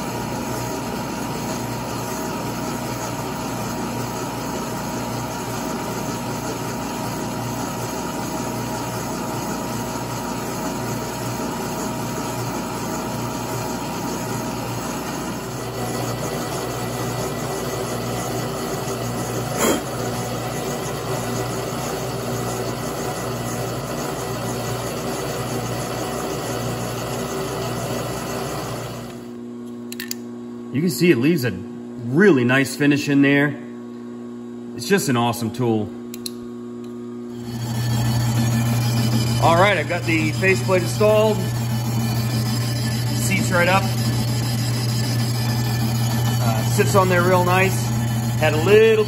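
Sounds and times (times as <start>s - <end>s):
machine spindle humming: 0.0s - 29.4s, 37.3s - 49.0s
sharp click: 36.1s - 37.0s.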